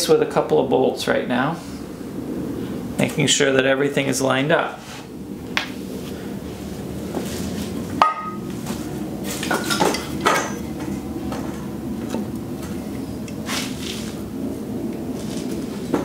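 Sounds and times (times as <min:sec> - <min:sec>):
steady low hum: 0:00.0 - 0:16.0
sharp ringing knock: 0:08.0 - 0:08.4.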